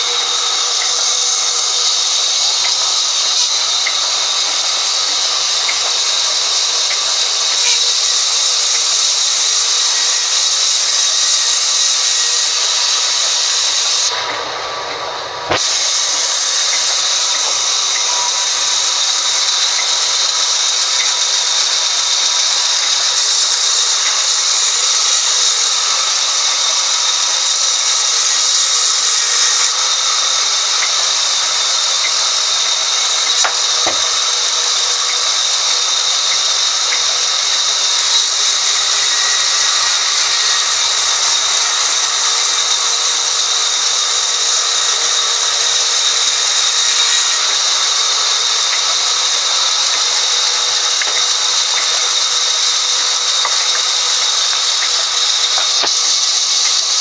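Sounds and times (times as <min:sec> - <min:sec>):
band saw cutting log: 0:00.0 - 0:57.0.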